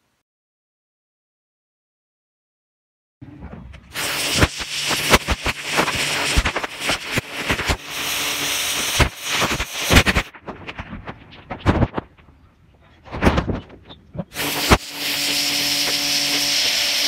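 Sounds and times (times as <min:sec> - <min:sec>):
pressure washer spray hissing: 0:03.9 - 0:10.3, 0:14.4 - 0:17.0
crackling spatter on brick: 0:03.9 - 0:12.4.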